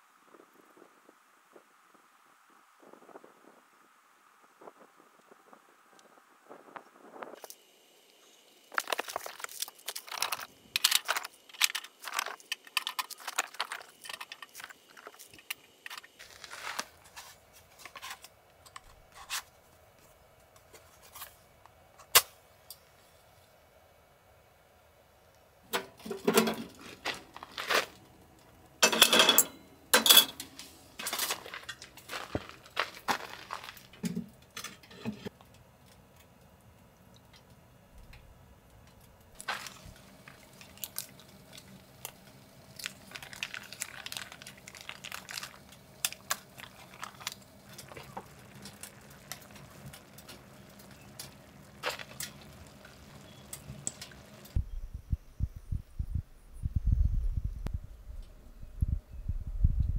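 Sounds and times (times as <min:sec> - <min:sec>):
objects clinking and knocking: 0:28.8 - 0:31.9.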